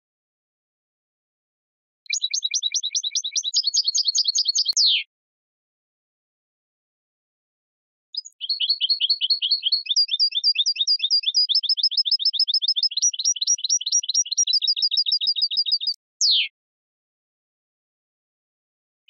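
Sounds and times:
goldfinch trilling song: 2.1 - 5.1, 8.2 - 16.5.

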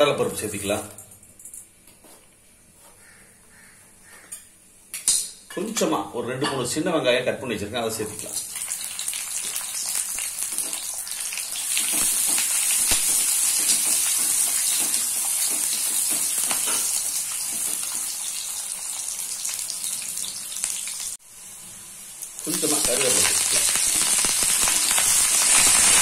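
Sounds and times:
shallots sizzling in hot oil: 8.1 - 26.0.

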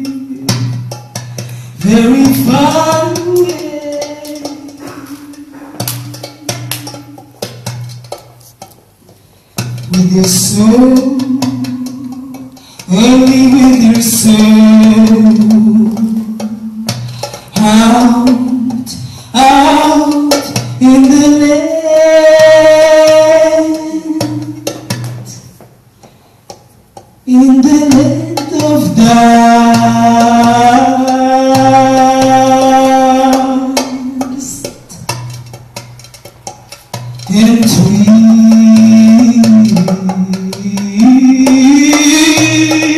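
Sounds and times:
woman singing into microphone: 1.8 - 7.5, 9.9 - 25.5, 27.3 - 35.1.

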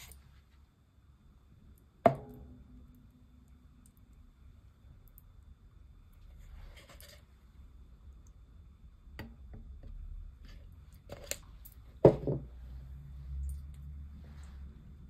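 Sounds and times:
sharp ringing knock on steel bowl: 2.1 - 2.7.

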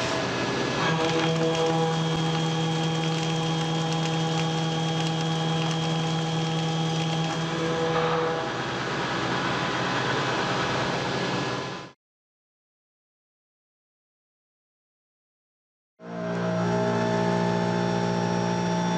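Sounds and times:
milling machine cutting metal: 0.1 - 8.8.

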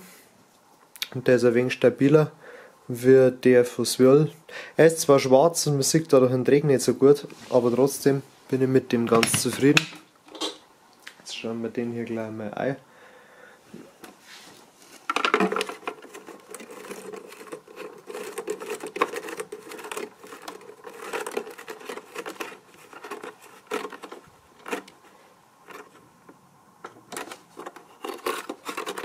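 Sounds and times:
plastic clicking and scraping: 14.9 - 29.0.

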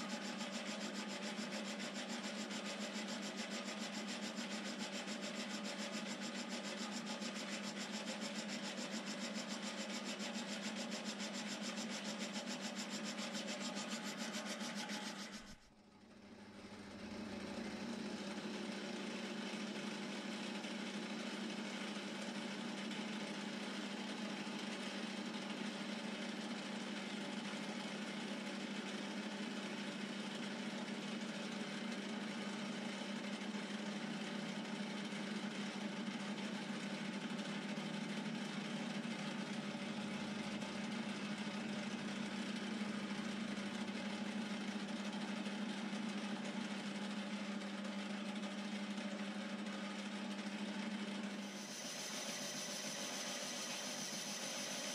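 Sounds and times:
metal lathe running: 0.0 - 15.5, 51.5 - 54.9
tool cutting metal workpiece: 0.0 - 15.6, 51.4 - 54.9.

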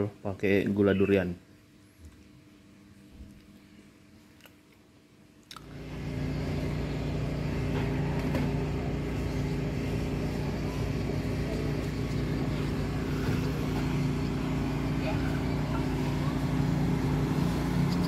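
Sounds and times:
vehicle engine hum: 5.6 - 18.0.

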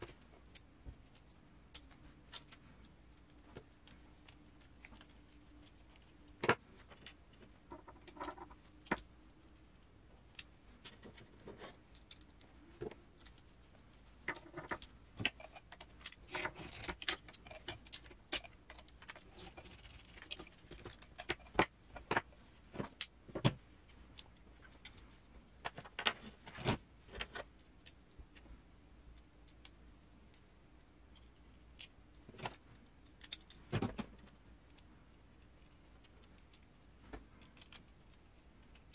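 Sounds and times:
small metal parts clinking: 29.2 - 30.5, 32.8 - 33.7.

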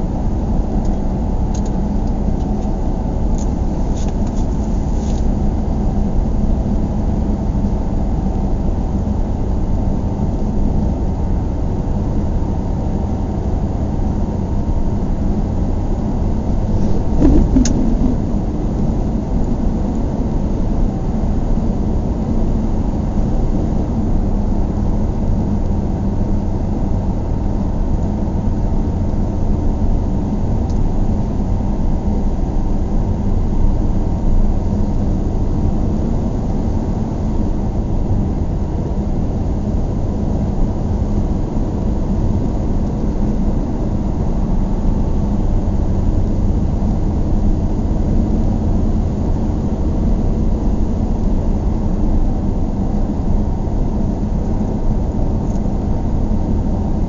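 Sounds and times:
car driving at highway speed: 16.5 - 21.3.

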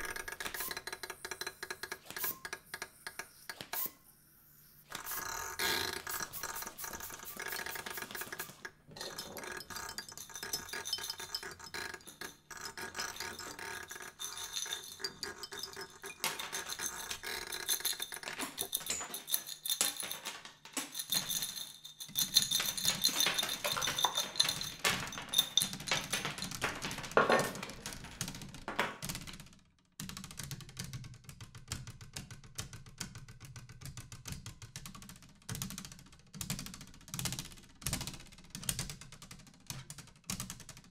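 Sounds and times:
percussion on household objects: 0.0 - 3.9, 4.9 - 29.3
held ringing tones: 5.0 - 27.7.

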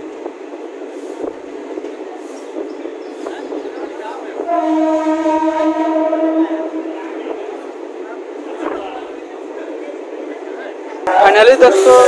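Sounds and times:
train wheels rolling: 0.0 - 12.0
train horn: 4.4 - 7.2.

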